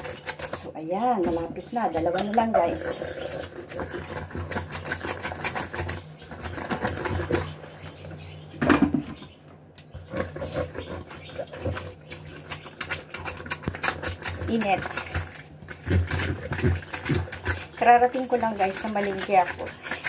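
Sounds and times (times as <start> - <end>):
lemon scraping on metal reamer: 10.0 - 20.0.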